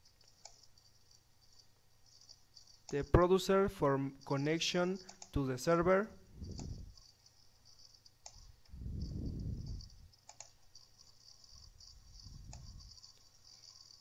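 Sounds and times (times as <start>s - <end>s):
computer mouse clicks: 0.0s - 3.2s, 4.2s - 14.0s
soft low rumbles: 5.7s - 7.0s, 8.5s - 10.2s, 11.5s - 13.2s.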